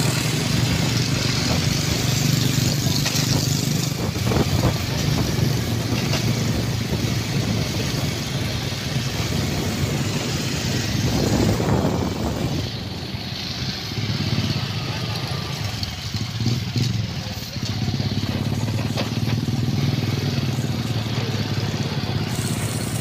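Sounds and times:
wind rushing on microphone: 0:00.0 - 0:14.7
motorcycle engine hum: 0:00.0 - 0:23.0.

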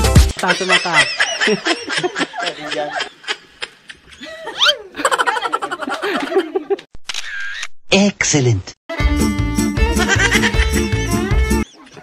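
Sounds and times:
person laughing hard: 0:09.9 - 0:11.1.

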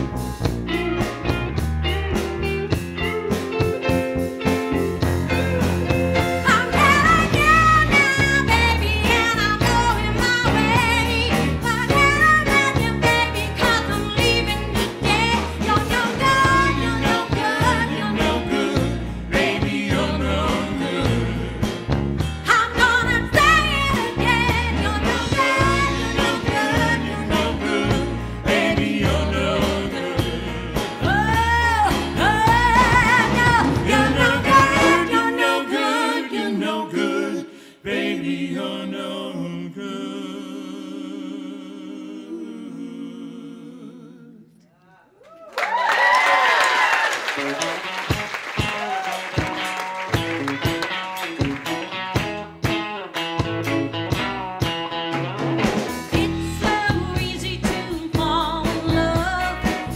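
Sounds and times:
small band playing: 0:00.0 - 0:37.2, 0:45.6 - 0:59.9
woman singing: 0:06.4 - 0:18.9, 0:22.5 - 0:28.6, 0:31.0 - 0:36.5, 0:56.1 - 0:59.9.

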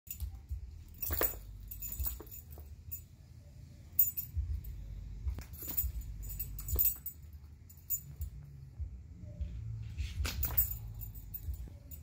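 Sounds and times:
dog collar and leash jingling: 0:00.1 - 0:03.0, 0:04.0 - 0:04.7, 0:05.4 - 0:08.6, 0:10.3 - 0:12.0.

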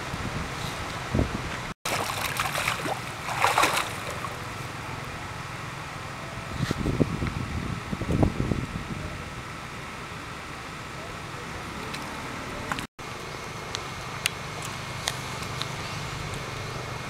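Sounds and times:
wind: 0:00.0 - 0:17.0
monkeys splashing in water: 0:01.9 - 0:04.6.

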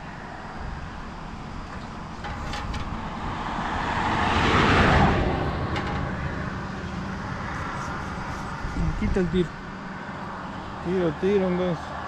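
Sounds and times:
vehicle passing by: 0:02.7 - 0:12.0.

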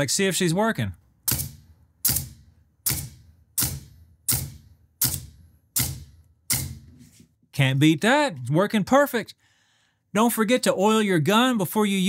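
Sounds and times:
nailer firing into wood: 0:01.2 - 0:06.9.

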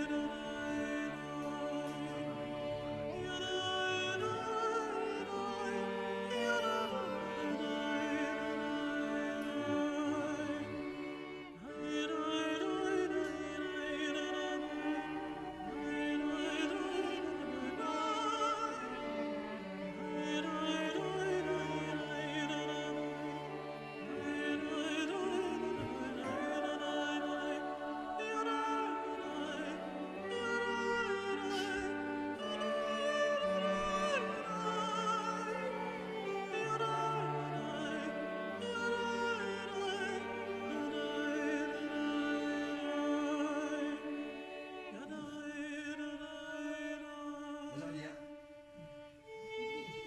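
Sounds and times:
operatic voice singing: 0:00.0 - 0:48.4
orchestral classical music: 0:00.0 - 0:50.0.

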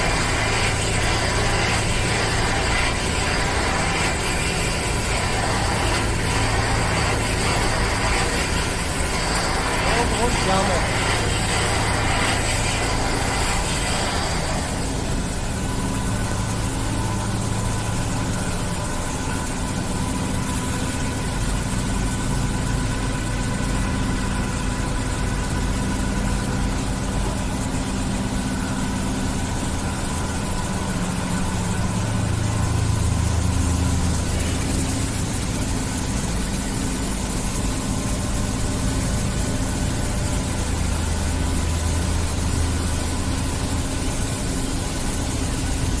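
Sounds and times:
spraying hiss: 0:00.0 - 0:17.9
low machinery hum: 0:00.0 - 0:46.0.

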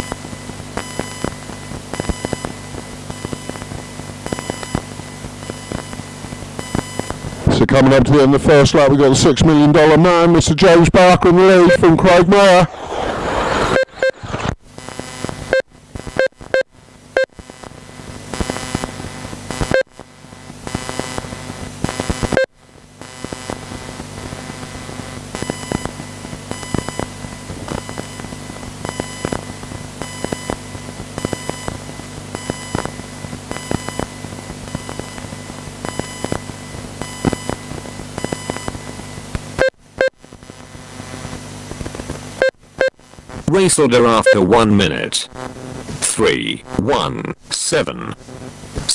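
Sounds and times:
electrical hum: 0:00.0 - 0:48.9
lap counter beeping: 0:44.0 - 0:44.8.

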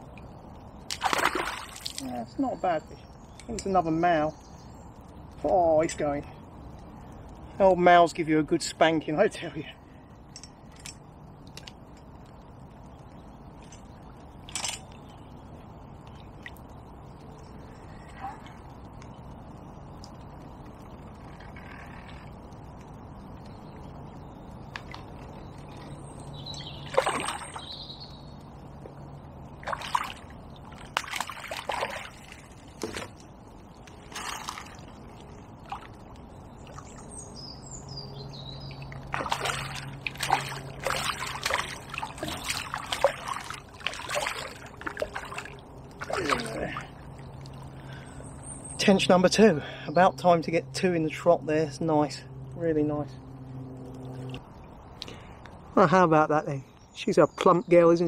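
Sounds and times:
fish splashing at the surface: 0:00.8 - 0:02.1, 0:26.8 - 0:27.8, 0:29.6 - 0:33.1, 0:38.9 - 0:47.8
bird chirping: 0:02.0 - 0:07.2, 0:23.1 - 0:28.6, 0:36.2 - 0:44.5.

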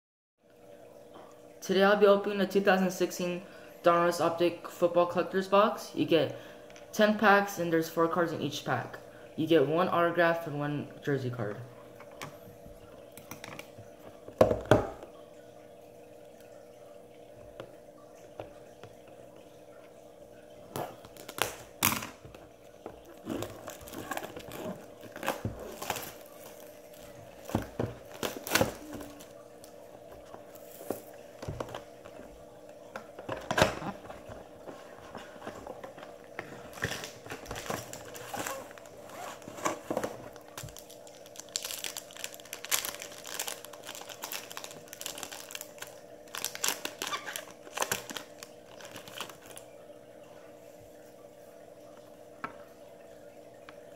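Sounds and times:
faint steady hum: 0:00.4 - 0:53.9
card wrappers crinkling and tearing: 0:20.9 - 0:22.1, 0:23.1 - 0:29.3, 0:36.6 - 0:49.7.

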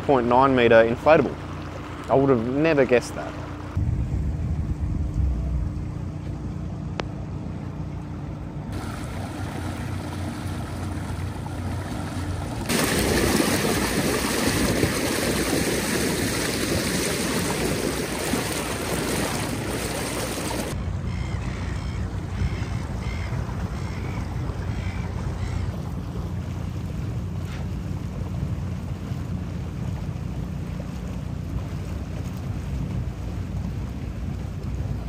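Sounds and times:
water splashing along a boat hull: 0:00.0 - 0:03.8, 0:06.1 - 0:35.0
low rumble: 0:03.6 - 0:30.4.

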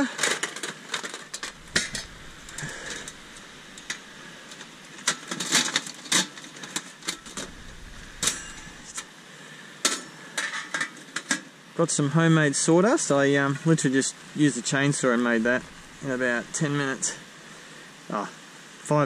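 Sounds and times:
metal clicks and rattles: 0:00.2 - 0:09.0.

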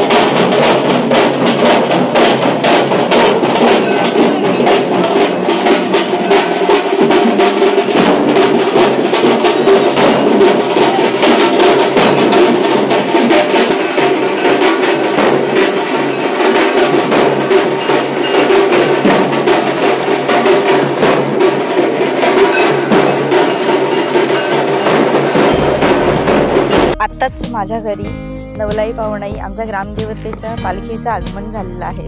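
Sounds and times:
dhol and tasha drumming: 0:00.0 - 0:32.0.

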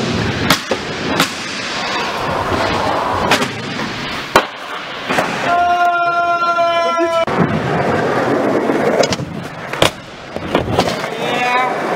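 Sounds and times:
skateboard wheels rolling on concrete: 0:00.0 - 0:11.9
skateboard clacking on ground: 0:08.2 - 0:11.9.

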